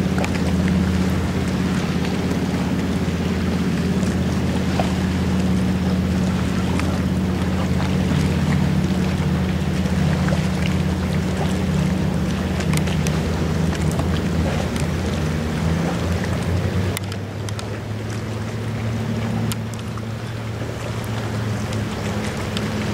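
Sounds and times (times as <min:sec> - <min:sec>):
boat engine humming: 0:00.0 - 0:22.9
water noise: 0:00.0 - 0:22.9
wind: 0:00.0 - 0:22.9.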